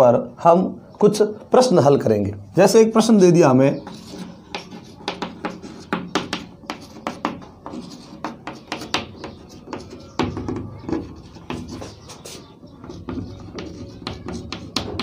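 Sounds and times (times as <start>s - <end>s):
chalk scratching on blackboard: 3.7s - 15.0s.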